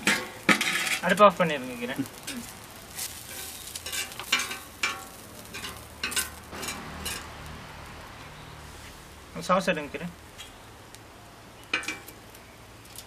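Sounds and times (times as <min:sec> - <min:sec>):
knife scraping iron griddle: 0:00.0 - 0:01.2, 0:02.2 - 0:07.3
light sizzle: 0:00.0 - 0:13.0.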